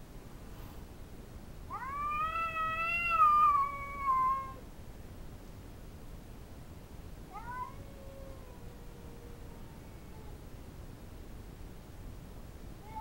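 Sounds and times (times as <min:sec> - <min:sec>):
cat yowling: 0:01.7 - 0:04.6, 0:07.3 - 0:10.4.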